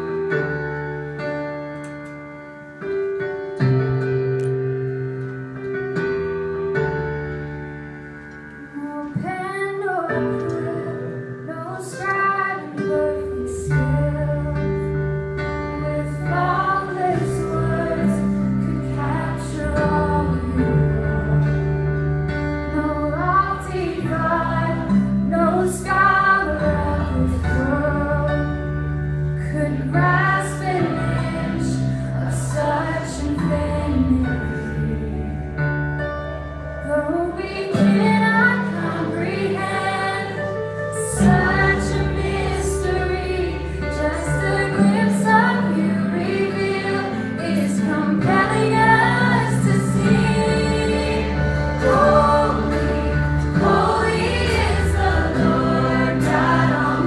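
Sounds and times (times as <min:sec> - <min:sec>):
keyboard chords: 0:00.0 - 0:57.0
woman singing: 0:08.8 - 0:15.1, 0:15.7 - 0:21.6, 0:22.7 - 0:28.8, 0:36.8 - 0:57.0.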